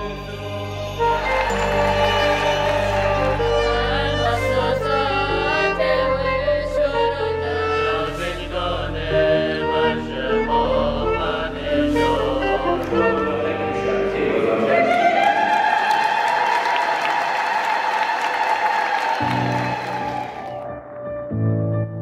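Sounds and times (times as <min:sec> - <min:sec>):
singing: 0:00.0 - 0:16.5.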